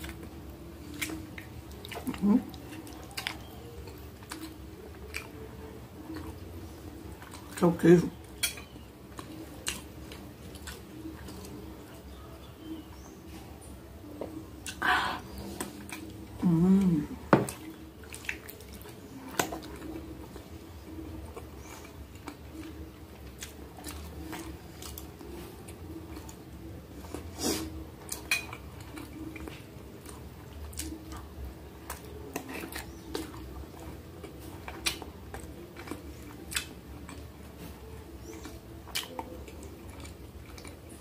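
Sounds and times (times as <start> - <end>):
chewing food: 0.0 - 41.0
person humming mmm: 16.4 - 17.2.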